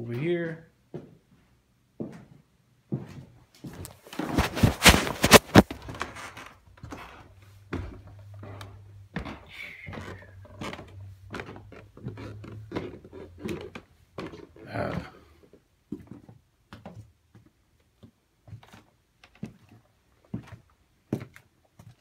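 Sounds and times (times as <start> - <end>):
footsteps on wooden stairs: 2.0 - 15.2.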